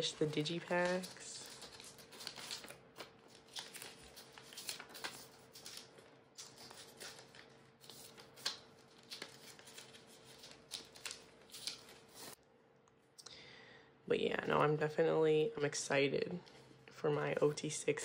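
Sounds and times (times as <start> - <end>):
plastic sleeves rustling: 0.0 - 12.4.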